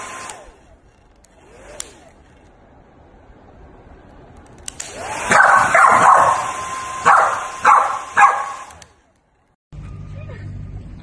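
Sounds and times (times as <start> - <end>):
dog barking: 5.3 - 8.6.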